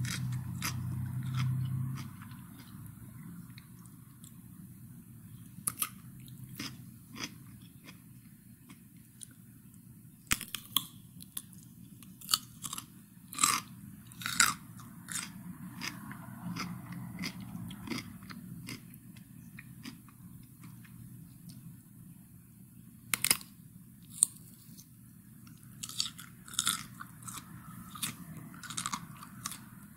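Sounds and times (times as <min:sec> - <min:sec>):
steady low hum: 0:00.0 - 0:29.9
cucumber crunching: 0:05.6 - 0:08.0, 0:23.1 - 0:24.9, 0:25.5 - 0:29.8.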